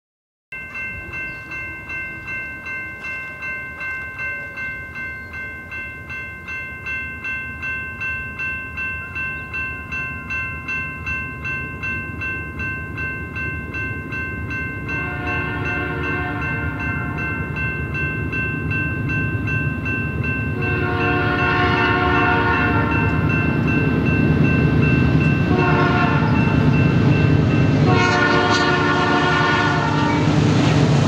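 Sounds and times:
level-crossing warning bell: 0.5 - 31.0
freight train rumble: 0.6 - 31.0
locomotive horn: 15.0 - 17.3, 20.6 - 23.2, 25.5 - 26.5, 27.8 - 30.3.

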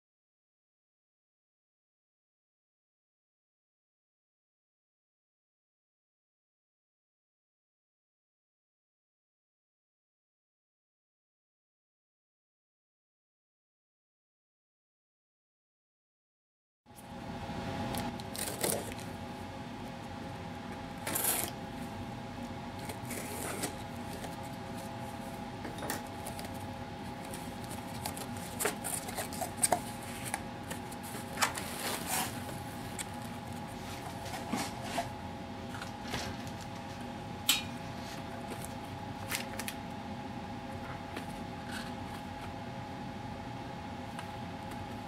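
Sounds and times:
steady hum: 16.9 - 45.0
plastic packaging rustling: 18.0 - 19.2, 22.8 - 35.1.

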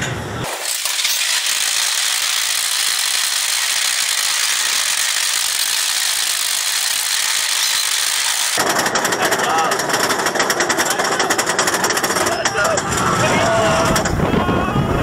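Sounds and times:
roller coaster rattling on track: 8.6 - 15.0.

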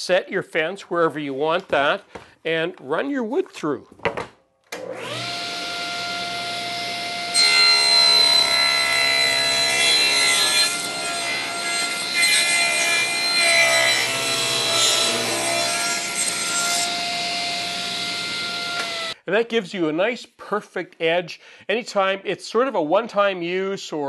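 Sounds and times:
table saw motor whining: 4.8 - 19.2.

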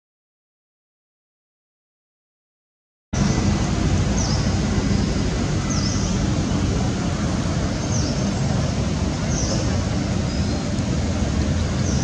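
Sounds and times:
steady low rumbling: 3.2 - 12.0.

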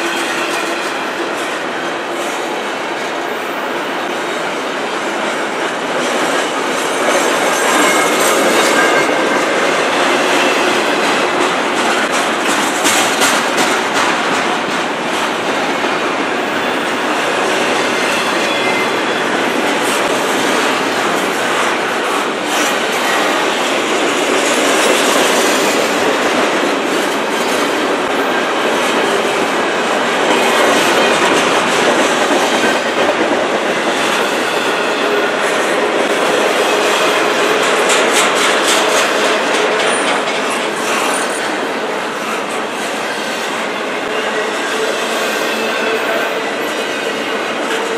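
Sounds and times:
train wheels rushing on rail: 0.0 - 47.9
wheels clicking over rail joints: 6.1 - 18.1.

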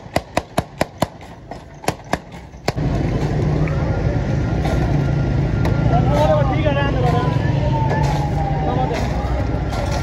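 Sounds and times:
street traffic: 0.0 - 10.0
crowd noise: 2.7 - 10.0.

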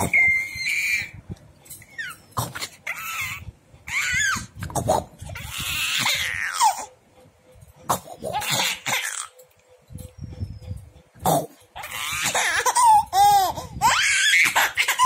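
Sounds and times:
baby laughing: 2.0 - 6.9, 7.9 - 9.4, 11.8 - 15.0.

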